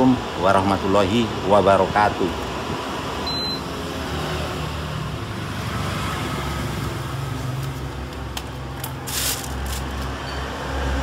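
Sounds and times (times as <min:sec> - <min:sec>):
fan humming: 0:00.0 - 0:11.0
plastic bag crinkling: 0:08.7 - 0:10.1.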